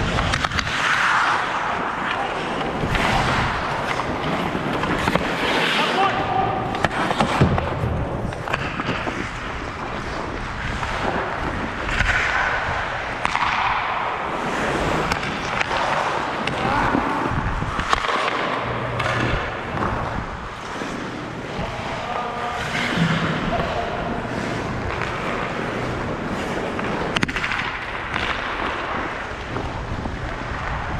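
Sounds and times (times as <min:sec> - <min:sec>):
hockey sticks and puck clacking: 0:00.0 - 0:30.9
skate blades scraping ice: 0:00.0 - 0:30.9.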